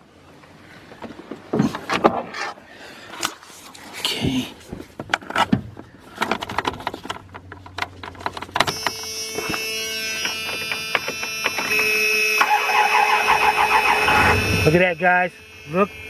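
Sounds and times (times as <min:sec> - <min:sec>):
clicks and handling noise: 0:04.6 - 0:11.9
electrical whine: 0:08.6 - 0:16.0
engine cranking and starting: 0:12.4 - 0:14.7.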